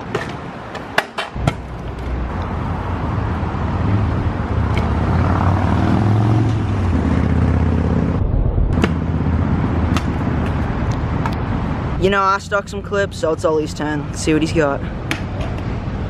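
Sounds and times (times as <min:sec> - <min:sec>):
scooter wheels clacking on concrete: 0:00.0 - 0:02.3
road traffic: 0:00.0 - 0:16.0
vehicle engine: 0:01.4 - 0:12.0.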